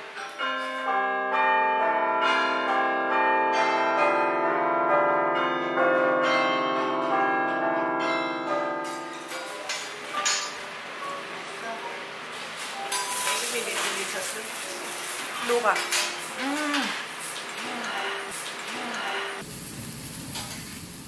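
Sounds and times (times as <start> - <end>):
bell-like chimes: 0.4 - 10.3.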